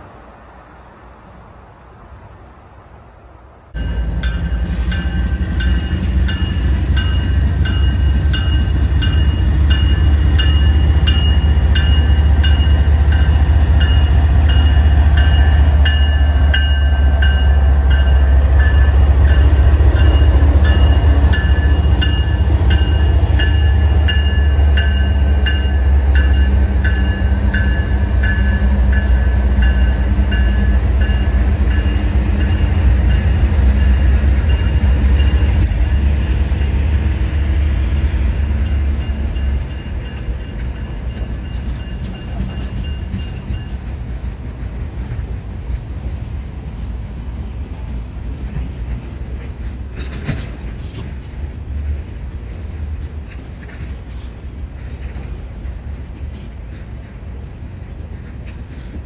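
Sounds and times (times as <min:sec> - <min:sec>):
freight train rumbling: 0:00.0 - 0:59.0
crossing bell ringing: 0:03.7 - 0:37.6, 0:38.2 - 0:44.0.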